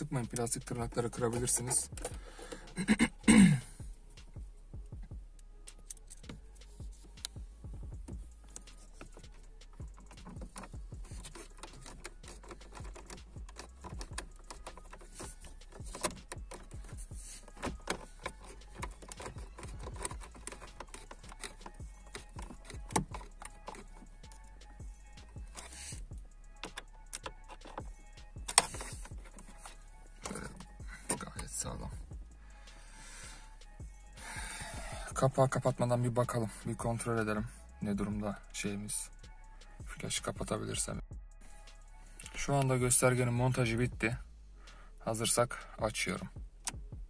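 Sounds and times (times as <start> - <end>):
screwdriver clicking on screws: 9.8 - 24.5.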